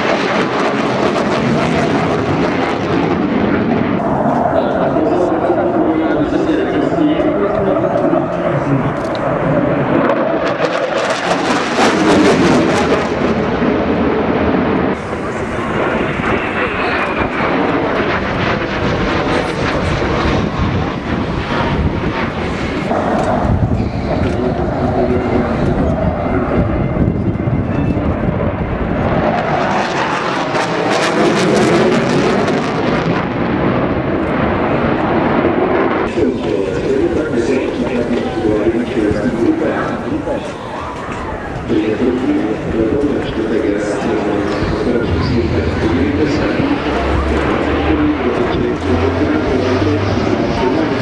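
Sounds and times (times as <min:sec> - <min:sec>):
jet engine roar with crackle: 0:00.0 - 0:51.0
rapid afterburner crackling: 0:07.6 - 0:27.0.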